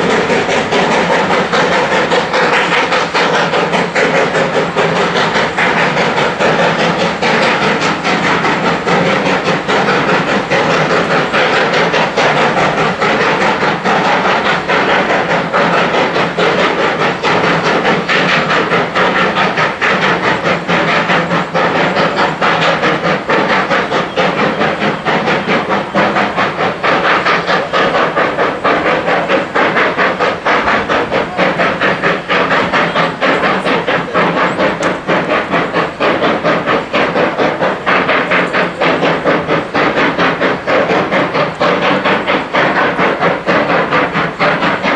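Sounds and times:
steam hissing: 0.0s - 44.9s
steam locomotive exhaust chuffing: 0.0s - 44.9s.

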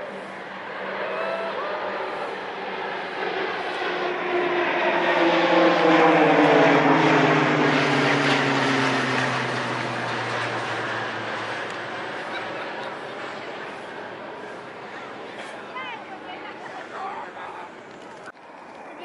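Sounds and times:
propeller aircraft passing overhead: 0.0s - 19.0s.

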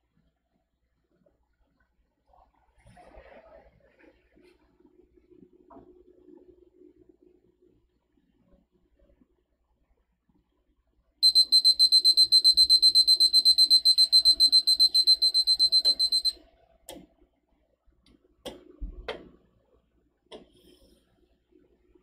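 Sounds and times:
timer alarm rapid high beeps: 11.2s - 16.4s.

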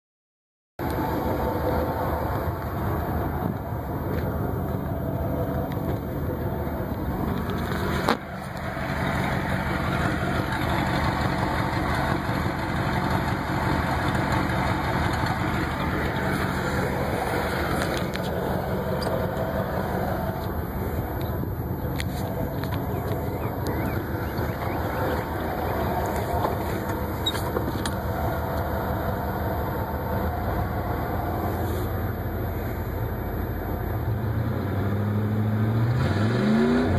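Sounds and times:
truck engine idling: 0.8s - 34.4s.

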